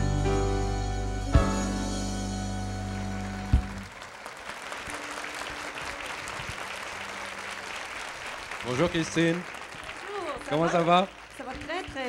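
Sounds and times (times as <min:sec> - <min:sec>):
backing music chord: 0:00.0 - 0:03.9
audience applauding: 0:03.0 - 0:12.0.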